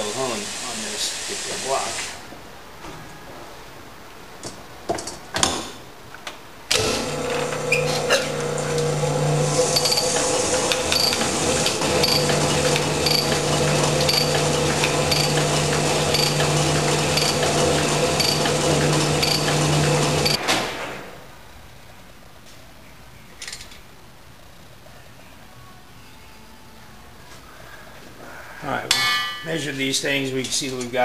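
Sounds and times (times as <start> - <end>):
honing machine running: 6.7 - 20.4
tooling clicks: 9.8 - 20.4.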